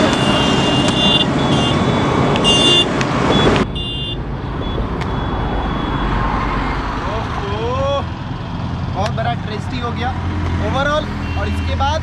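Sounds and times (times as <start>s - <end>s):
traffic rumble: 0.0s - 12.0s
vehicles passing: 0.0s - 12.0s
short high-pitched beeps: 2.5s - 6.2s.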